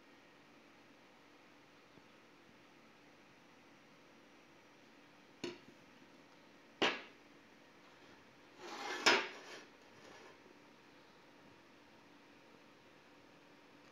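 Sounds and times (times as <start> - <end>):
metal sliding on wood: 7.9 - 10.5.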